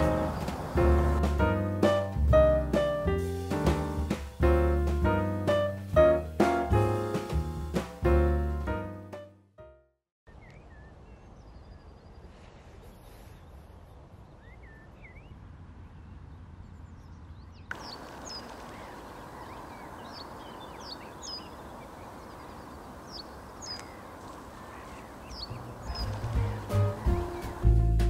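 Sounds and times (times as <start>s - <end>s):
small birds chirping: 0.0s - 1.4s, 10.3s - 27.8s.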